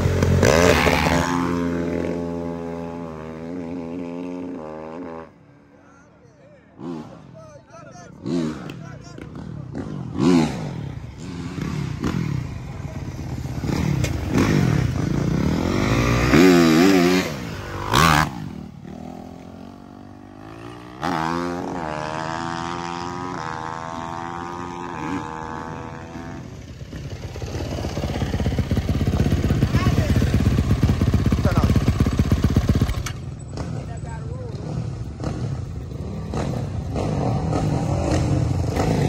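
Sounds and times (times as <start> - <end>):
dirt bike engines revving: 0.0 - 39.0
motorbike pulling through gears: 9.7 - 39.0.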